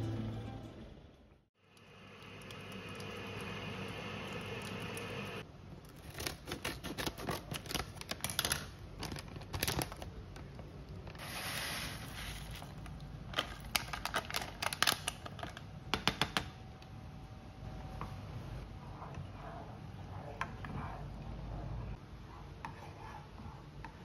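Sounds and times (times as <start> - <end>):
plastic pouch crinkling: 12.2 - 15.6.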